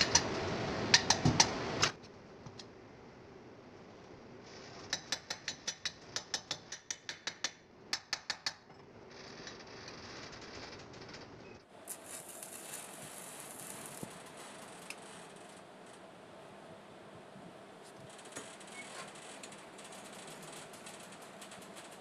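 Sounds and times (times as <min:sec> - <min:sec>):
welding arc hissing and crackling: 0:09.4 - 0:15.6.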